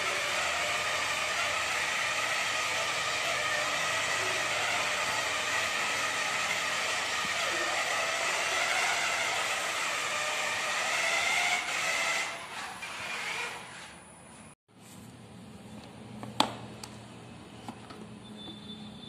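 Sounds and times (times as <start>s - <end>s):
toy car motor whining: 0.0s - 14.0s.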